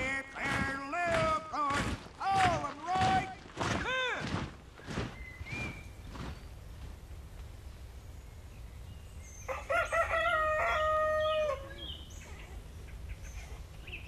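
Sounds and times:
rooster crowing: 9.5 - 11.9.

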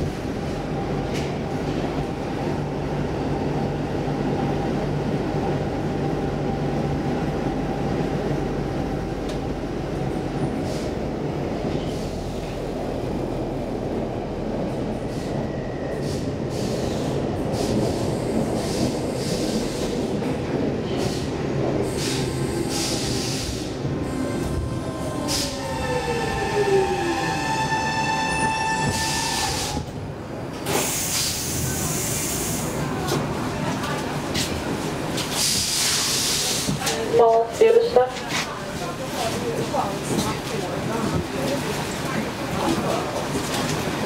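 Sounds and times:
train wheels rumbling on rails: 0.0 - 44.0
train wheel squeals: 25.3 - 29.8.

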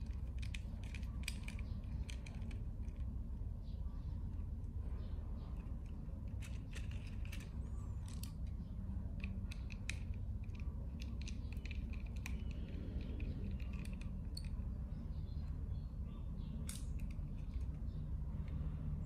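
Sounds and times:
small plastic and metal clicks: 0.0 - 3.1, 5.6 - 14.7, 16.6 - 18.6
steady low hum: 0.0 - 19.0.

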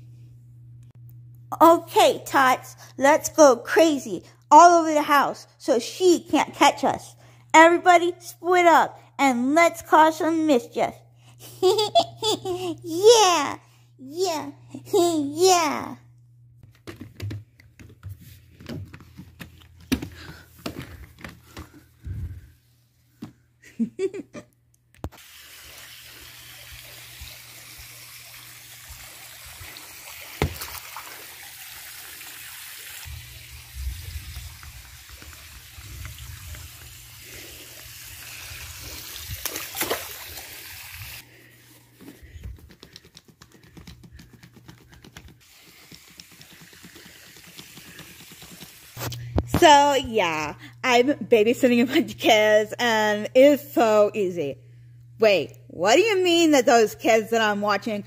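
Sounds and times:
water rushing in a pool: 25.2 - 41.2.

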